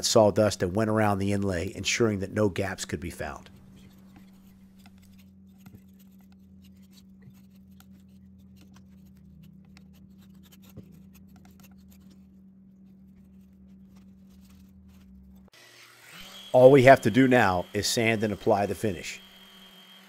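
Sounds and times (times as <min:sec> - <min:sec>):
steady low hum: 0:00.0 - 0:15.6
putty knife scraping and ticking: 0:03.3 - 0:12.3.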